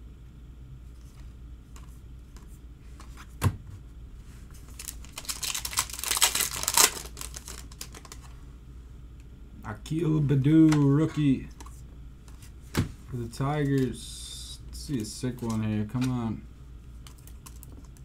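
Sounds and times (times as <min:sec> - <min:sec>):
foil pack crinkling and tearing: 0:04.7 - 0:08.3, 0:17.1 - 0:17.8.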